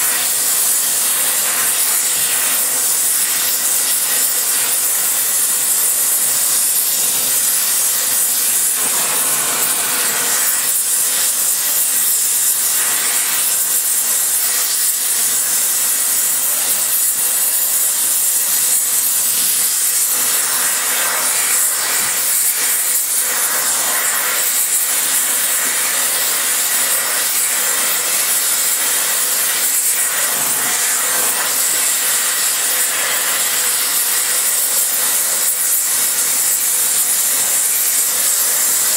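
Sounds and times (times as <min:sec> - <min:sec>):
torch flame hissing: 0:00.0 - 0:38.9.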